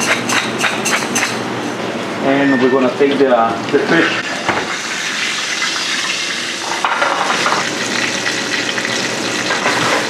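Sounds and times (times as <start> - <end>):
fish sizzling in hot oil: 4.7 - 10.0.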